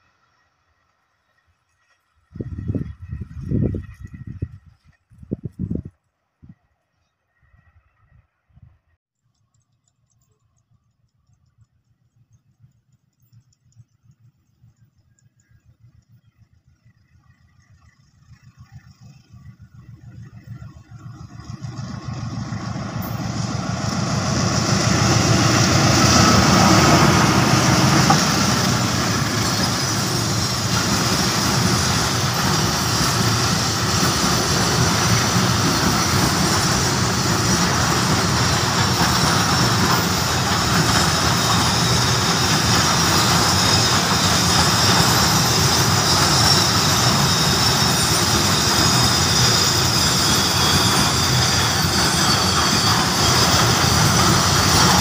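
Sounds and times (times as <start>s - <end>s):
diesel locomotive passing: 0.0s - 9.0s, 11.9s - 55.0s
wagon wheels rolling over rails: 25.0s - 55.0s.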